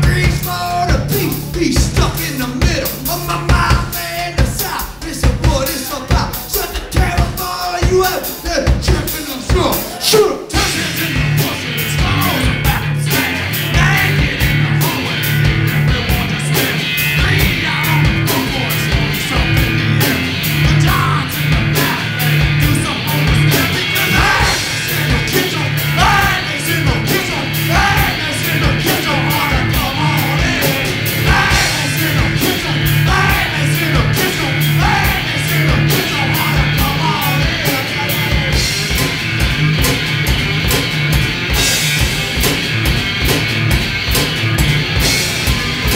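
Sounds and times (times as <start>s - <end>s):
person shouting singing: 0.0s - 15.2s, 15.9s - 38.7s
fast drum beats: 0.0s - 45.9s
electric guitar: 9.8s - 45.9s.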